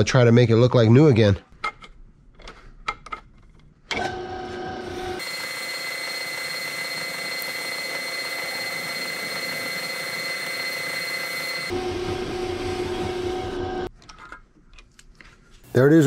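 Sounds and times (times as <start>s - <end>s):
metal lathe whining: 4.0s - 13.9s.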